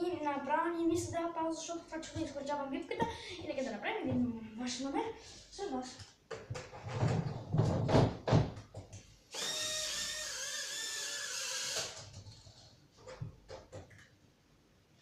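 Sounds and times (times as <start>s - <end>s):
toy drone propellers whirring: 9.4s - 12.0s.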